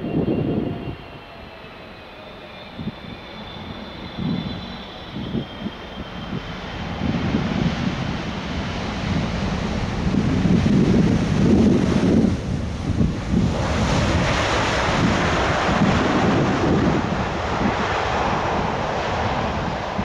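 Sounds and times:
wind buffeting microphone: 0.0s - 1.6s, 2.6s - 20.0s
jet engines whining: 0.0s - 20.0s
low rumble: 4.2s - 20.0s.

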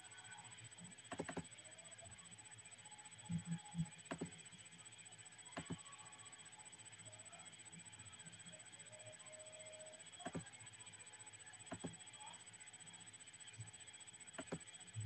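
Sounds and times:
mouse clicks: 5.6s - 5.8s, 11.7s - 11.9s, 14.4s - 14.6s.

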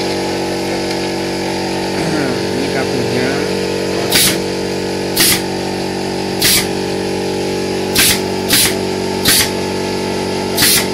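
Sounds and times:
steady motor hum: 0.0s - 10.9s
nail gun firing: 4.1s - 4.4s, 5.2s - 5.4s, 6.4s - 6.7s, 7.9s - 9.6s, 10.6s - 10.9s.

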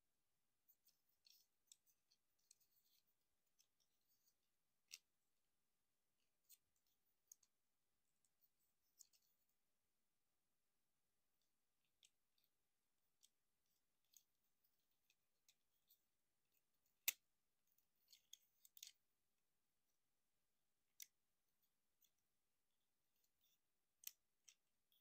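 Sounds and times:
plastic toy parts clicking: 17.0s - 17.2s, 18.0s - 19.0s, 23.3s - 25.0s.

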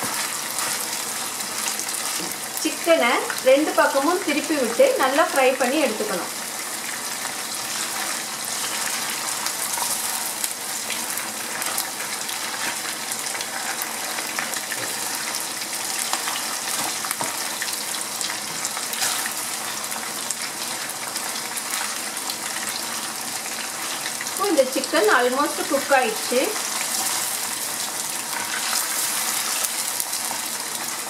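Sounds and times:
spatula clicking and scraping: 0.0s - 1.0s
chicken sizzling in hot oil: 0.0s - 31.0s.

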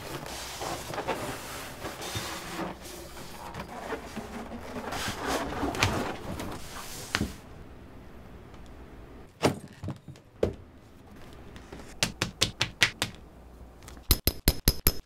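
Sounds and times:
leather hide rubbing and scraping: 0.0s - 7.1s.

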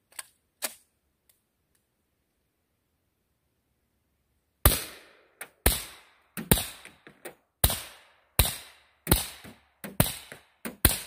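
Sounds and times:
suppressed pistol shots: 4.6s - 11.0s.

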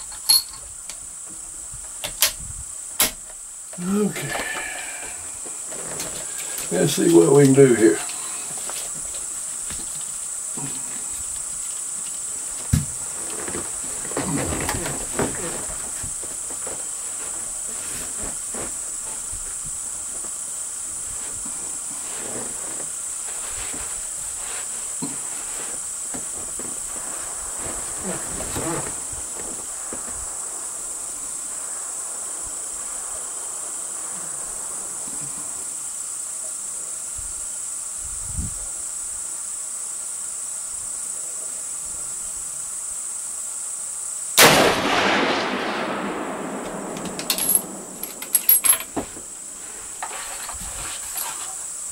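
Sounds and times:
crickets chirping: 0.0s - 51.9s
loud rifle shot: 44.4s - 48.0s.

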